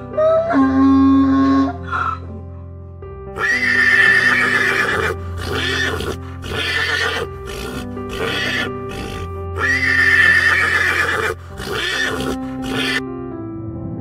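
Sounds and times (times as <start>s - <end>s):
soft background music: 0.0s - 14.0s
loud animal calls: 3.4s - 13.0s.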